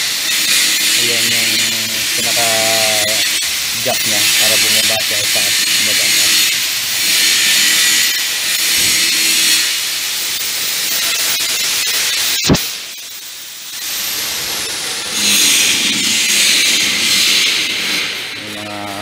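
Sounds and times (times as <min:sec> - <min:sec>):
compressed air hissing: 0:01.0 - 0:07.7
sharp click: 0:12.3 - 0:12.8.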